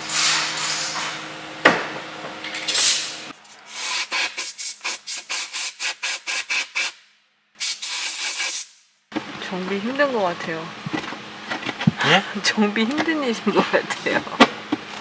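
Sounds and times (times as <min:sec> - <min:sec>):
compressed air blasts: 0:02.7 - 0:08.9.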